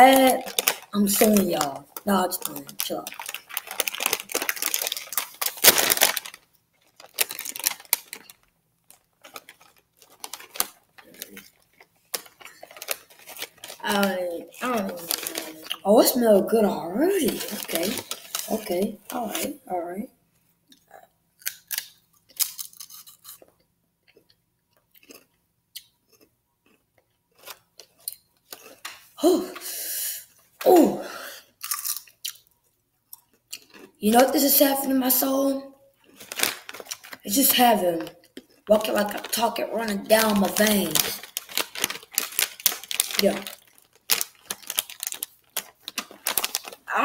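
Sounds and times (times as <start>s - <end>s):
chip bag ripping open: 0.0s - 15.8s, 17.2s - 19.5s, 21.5s - 23.4s, 31.6s - 32.5s, 36.1s - 38.1s, 38.8s - 47.0s
chip bag crinkling: 0.0s - 19.6s, 21.4s - 24.3s, 26.1s - 29.1s, 31.6s - 32.6s, 33.2s - 35.4s, 36.0s - 47.0s.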